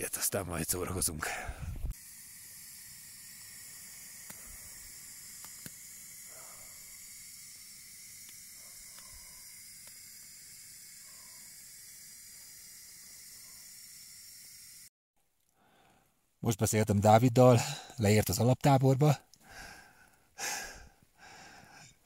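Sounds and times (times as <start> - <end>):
gas stove burning hiss: 1.3 - 14.9
faint clicks: 8.2 - 10.0.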